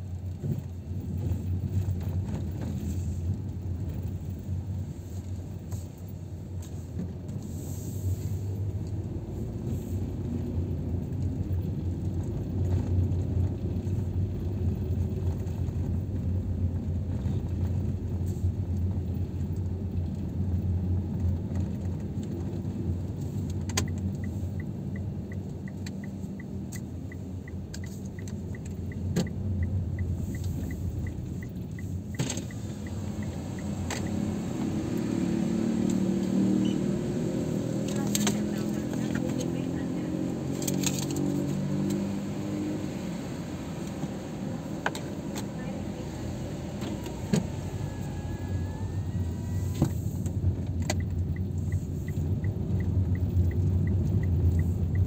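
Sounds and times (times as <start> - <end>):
car engine and road rumble: 0.0 - 55.0
light even ticking: 23.5 - 34.2, 50.8 - 55.0.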